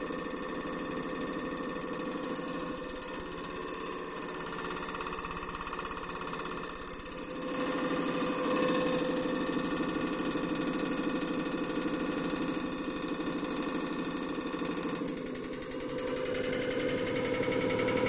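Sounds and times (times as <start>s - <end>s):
mechanical whir: 14.4s - 18.0s.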